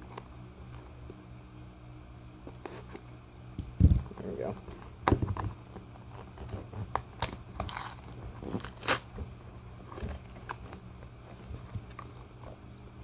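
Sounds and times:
knife cutting tape and cardboard: 0:06.1 - 0:09.2.

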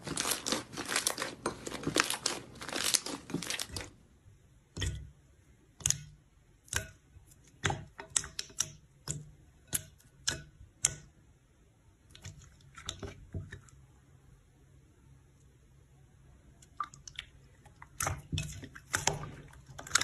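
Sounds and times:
slime clicking and popping: 0:05.8 - 0:11.1.

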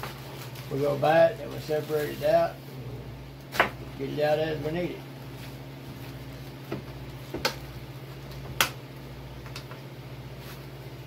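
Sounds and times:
paper and plastic bag crinkling: 0:00.0 - 0:02.6, 0:10.3 - 0:11.0
steady low hum: 0:00.0 - 0:11.0.

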